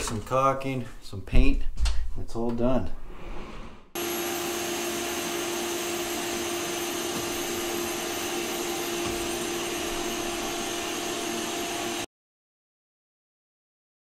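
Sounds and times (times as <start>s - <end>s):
vacuum cleaner running: 4.0s - 12.1s.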